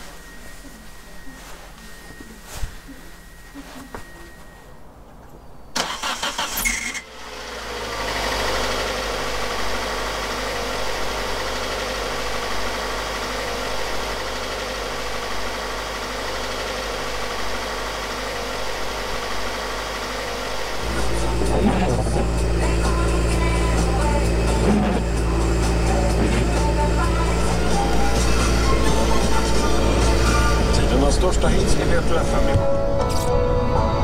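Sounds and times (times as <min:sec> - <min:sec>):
car engine idling: 0:05.8 - 0:32.9.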